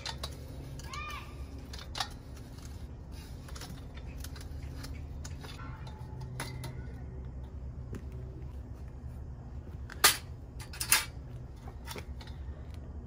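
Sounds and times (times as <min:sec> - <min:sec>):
steady low hum: 0:00.0 - 0:13.0
footsteps on concrete: 0:07.8 - 0:10.0.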